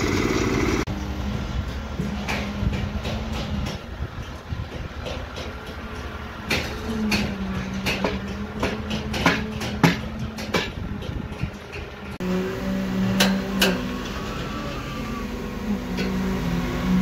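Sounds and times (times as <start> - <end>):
machine hum: 0.0 - 1.4
metal clanks and knocks: 0.0 - 12.2, 13.1 - 13.9.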